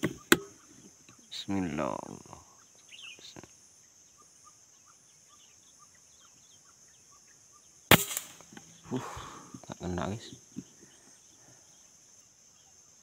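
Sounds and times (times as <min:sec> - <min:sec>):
faint bird chirps: 0:00.0 - 0:13.0
insect hum: 0:00.0 - 0:13.0
air rifle shot: 0:07.9 - 0:08.6.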